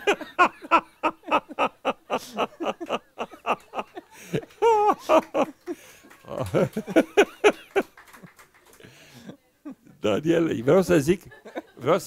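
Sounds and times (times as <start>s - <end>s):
man laughing into a microphone: 0.0s - 5.5s, 6.2s - 7.8s.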